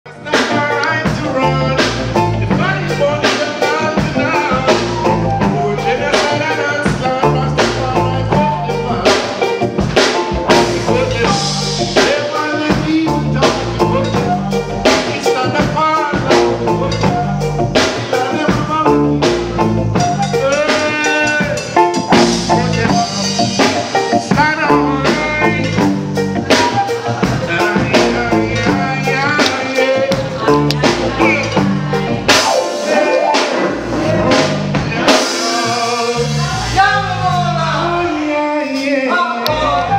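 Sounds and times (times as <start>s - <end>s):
reggae band playing: 0.0s - 39.9s
drum kit beat: 0.1s - 38.0s
person singing: 0.1s - 39.9s
flute: 20.0s - 21.6s, 26.4s - 29.0s, 38.1s - 39.9s.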